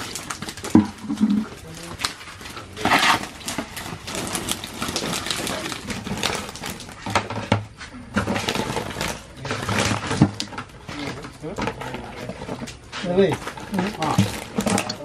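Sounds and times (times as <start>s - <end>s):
wet fish slapping: 0.0s - 7.0s
plastic basins clattering: 0.0s - 15.0s.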